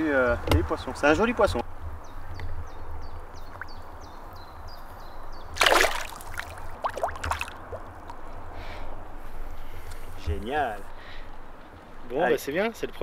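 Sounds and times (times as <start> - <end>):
fish splashing at surface: 5.6 - 8.0
water dripping: 5.6 - 8.4.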